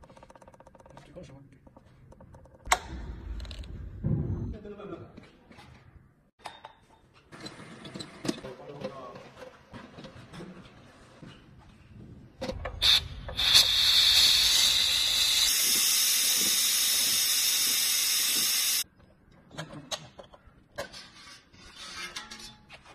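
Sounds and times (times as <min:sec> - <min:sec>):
autoclave steam hissing: 0:12.8 - 0:18.8
short steam spurts: 0:12.8 - 0:18.8.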